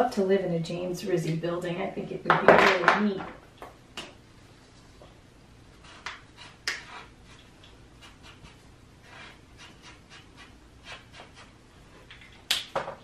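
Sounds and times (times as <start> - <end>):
marker scratching on paper: 5.8 - 11.6.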